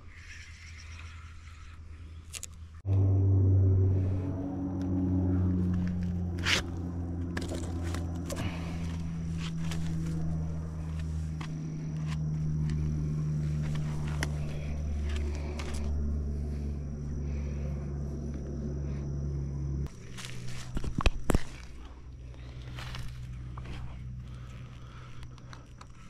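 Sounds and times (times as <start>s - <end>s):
low engine drone: 0.7s - 26.0s
rustles: 4.9s - 19.1s, 19.8s - 26.0s.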